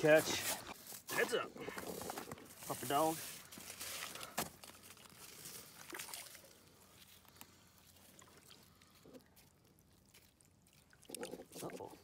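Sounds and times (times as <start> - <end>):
faint water sloshing: 1.6 - 12.0.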